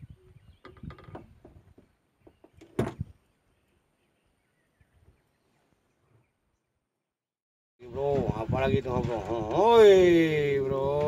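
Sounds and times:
knocks against wooden frame: 0:00.7 - 0:03.1
loud thump: 0:02.8 - 0:03.1.

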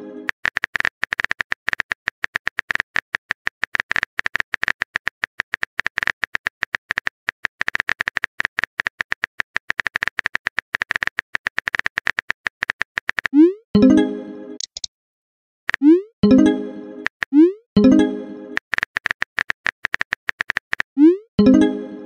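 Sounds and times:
phone keyboard typing clicks: 0:14.6 - 0:14.9, 0:18.6 - 0:20.9.

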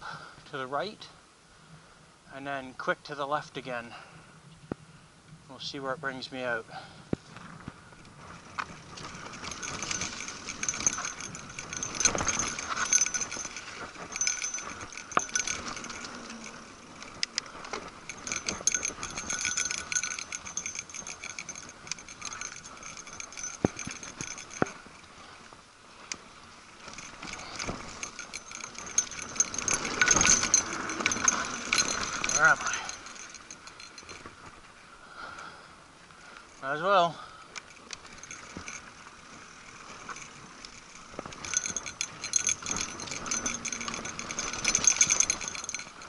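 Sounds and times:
wheels knocking on bumps: 0:07.1 - 0:25.0, 0:26.8 - 0:34.6, 0:37.9 - 0:46.0
bike parts metallic jangle: 0:08.2 - 0:35.5, 0:36.2 - 0:46.0.

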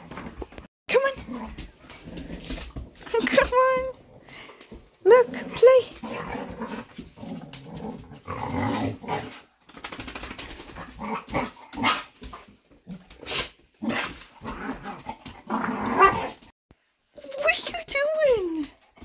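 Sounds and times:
dogs growling: 0:01.2 - 0:09.6, 0:10.6 - 0:12.1, 0:13.8 - 0:16.5.

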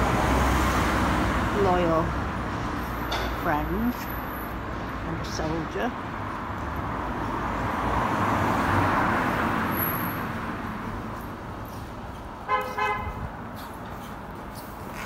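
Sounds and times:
car passing: 0:03.9 - 0:15.0
car horn toot: 0:12.5 - 0:13.2.

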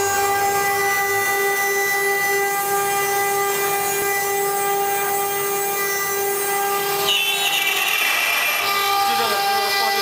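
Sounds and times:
router spindle whine: 0:00.0 - 0:10.0.

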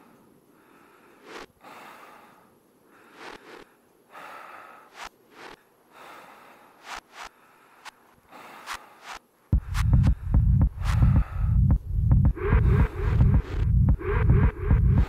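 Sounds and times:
breath-like hissing swells: 0:00.0 - 0:09.3.

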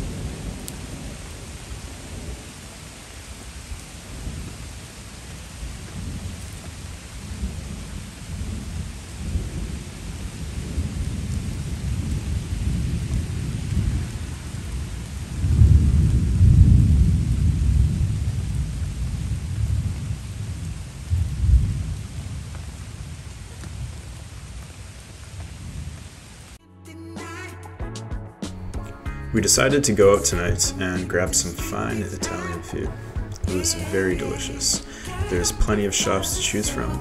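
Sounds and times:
rolling thunder: 0:00.0 - 0:26.0
steady rain: 0:00.0 - 0:26.6, 0:28.5 - 0:37.0.

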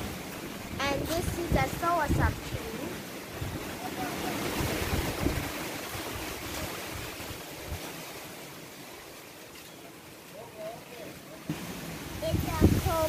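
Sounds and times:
wind buffeting microphone: 0:00.0 - 0:08.1, 0:11.6 - 0:13.0.

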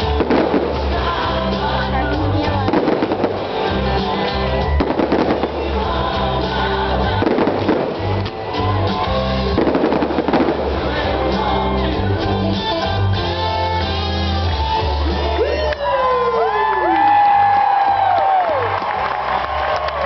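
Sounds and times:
fireworks bursting and crackling: 0:00.0 - 0:11.9
loud music with bass line: 0:00.0 - 0:16.2.

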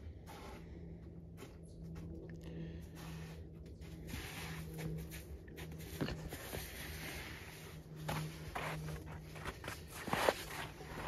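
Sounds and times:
faint low hum: 0:00.0 - 0:11.0
footsteps on snow: 0:02.9 - 0:11.0.

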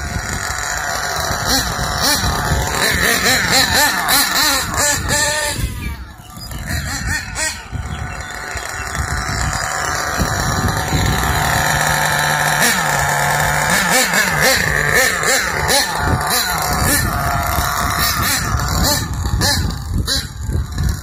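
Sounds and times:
rc truck engine revving: 0:00.0 - 0:21.0.

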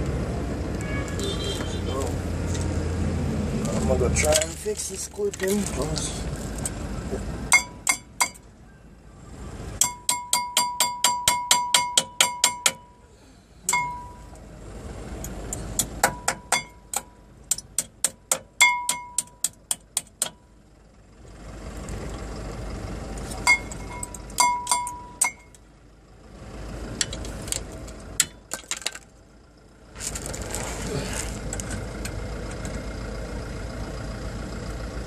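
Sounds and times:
hammer tapping on metal: 0:07.5 - 0:08.4, 0:09.8 - 0:12.9, 0:15.8 - 0:20.4.

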